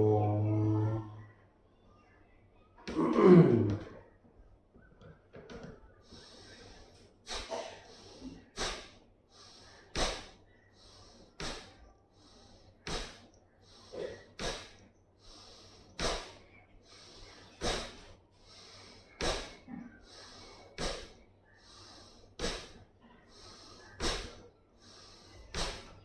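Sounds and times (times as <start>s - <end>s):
forceful breaths through nose: 6.0s - 26.0s.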